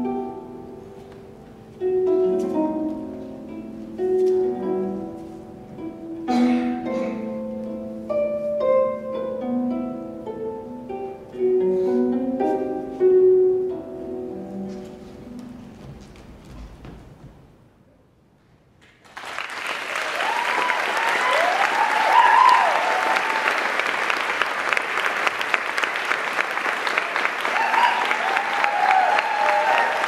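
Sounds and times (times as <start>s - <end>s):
solo harp playing: 0.0s - 16.0s.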